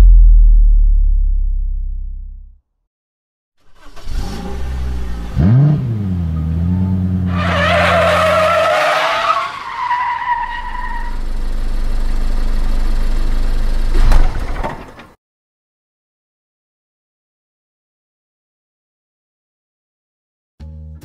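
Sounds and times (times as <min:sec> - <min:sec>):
car engine revving: 0:03.8 - 0:09.6
tyres squealing: 0:07.3 - 0:11.2.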